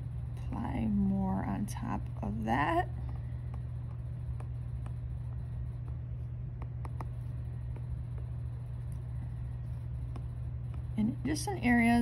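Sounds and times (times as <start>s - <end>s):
steady low hum: 0.0s - 12.0s
stylus tapping on glass screen: 6.6s - 8.5s, 10.0s - 11.0s.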